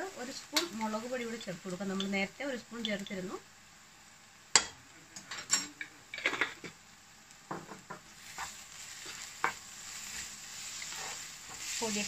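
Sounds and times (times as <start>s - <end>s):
faint sizzle: 0.0s - 12.0s
spatula scraping frying pan: 8.2s - 12.0s.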